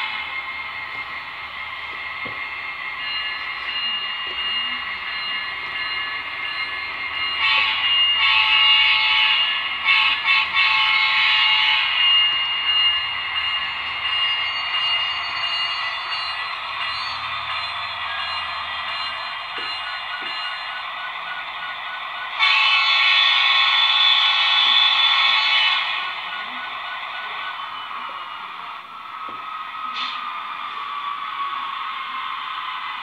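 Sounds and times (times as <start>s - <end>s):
model locomotive diesel engine sound: 0.0s - 33.0s
locomotive horn blasts: 7.4s - 12.1s, 22.4s - 26.0s.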